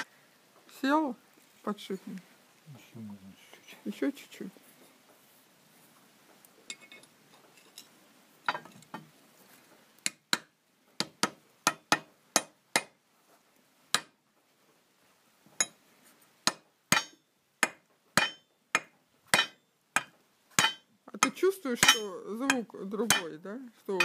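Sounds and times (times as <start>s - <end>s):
hammer striking metal: 16.5s - 20.8s, 21.8s - 23.3s.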